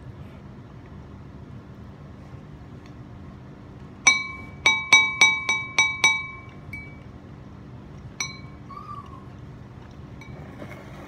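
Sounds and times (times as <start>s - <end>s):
utensil clinking against a dish: 4.0s - 7.1s, 8.2s - 8.7s.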